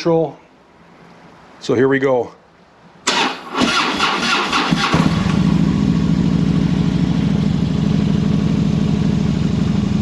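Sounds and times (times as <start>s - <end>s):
motorcycle engine idling: 4.9s - 10.0s.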